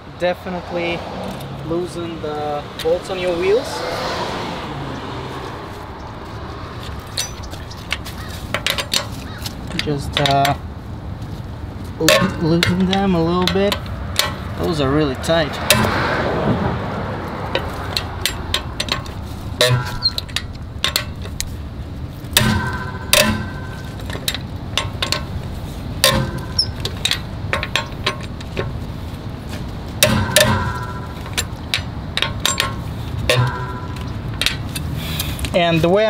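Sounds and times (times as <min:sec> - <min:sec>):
wrench clicking on bolts: 0:06.8 - 0:10.6, 0:12.0 - 0:14.8, 0:17.5 - 0:21.5, 0:22.3 - 0:28.8, 0:30.0 - 0:35.6
ringing metal clank: 0:07.0 - 0:08.0, 0:12.0 - 0:14.5, 0:15.7 - 0:16.0, 0:17.6 - 0:21.5, 0:22.3 - 0:28.8, 0:30.0 - 0:34.8.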